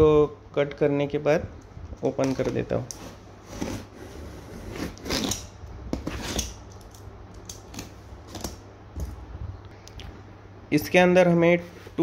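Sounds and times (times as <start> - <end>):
knife scraping through cardboard: 3.0 - 6.6.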